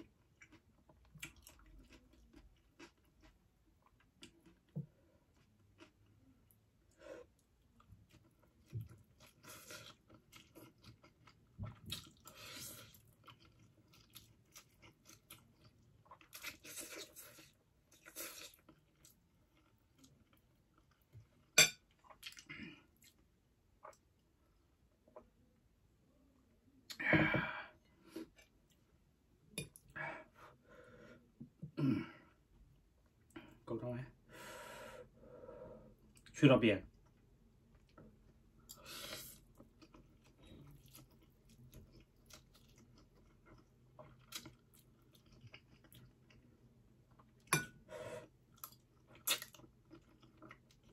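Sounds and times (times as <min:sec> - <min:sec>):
chewing: 0:00.0 - 0:06.6, 0:07.3 - 0:23.2, 0:37.1 - 0:47.7, 0:48.4 - 0:50.9.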